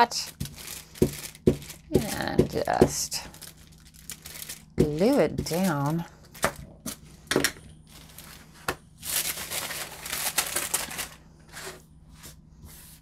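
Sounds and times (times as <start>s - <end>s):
paper rustling and sliding: 7.9s - 13.0s.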